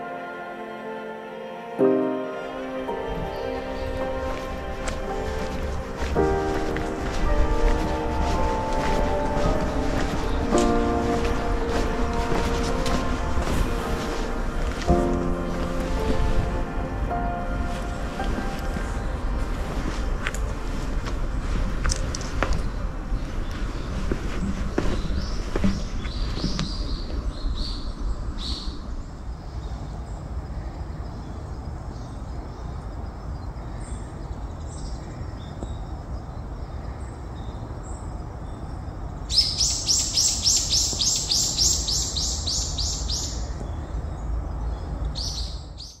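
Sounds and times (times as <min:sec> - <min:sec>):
birds chirping: 0:02.0 - 0:46.0
steady low rumble: 0:03.0 - 0:33.5.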